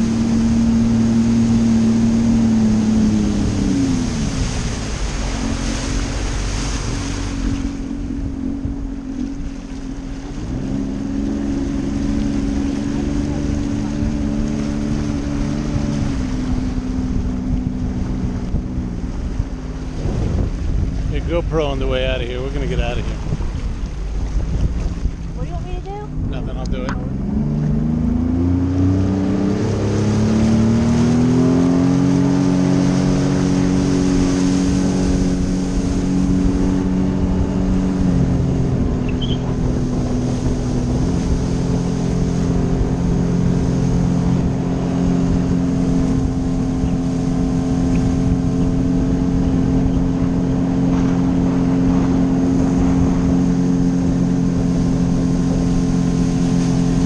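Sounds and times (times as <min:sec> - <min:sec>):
personal watercraft engine: 0:00.0 - 0:57.0
rush of water and wind: 0:00.0 - 0:57.0.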